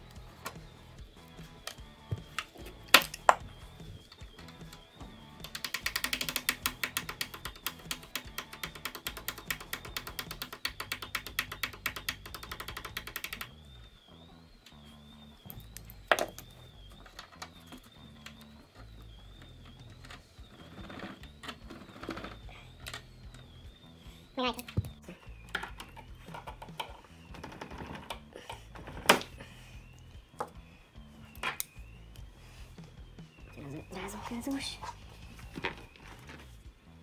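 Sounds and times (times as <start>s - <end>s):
fast ratchet-like clicking: 5.4s - 13.6s.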